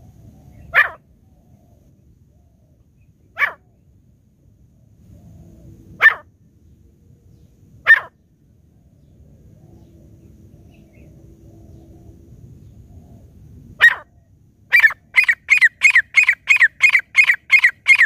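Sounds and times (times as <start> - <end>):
francolin calls: 14.7 - 18.0.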